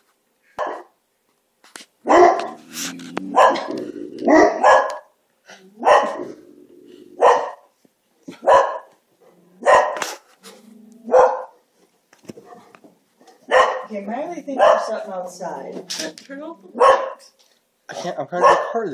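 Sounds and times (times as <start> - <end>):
dogs barking: 0.6 - 1.0, 2.0 - 10.2, 11.0 - 11.7, 12.4 - 13.9, 14.5 - 15.1, 16.7 - 17.3, 18.4 - 18.9
dogs growling: 2.1 - 7.6, 8.2 - 11.6.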